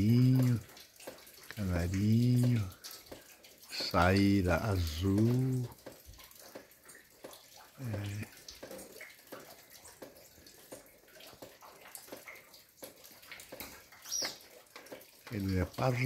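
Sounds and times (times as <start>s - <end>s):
man humming low: 0.0s - 0.6s, 1.6s - 2.7s
small ticks and drips: 0.0s - 16.0s
bird chirp: 14.0s - 14.5s.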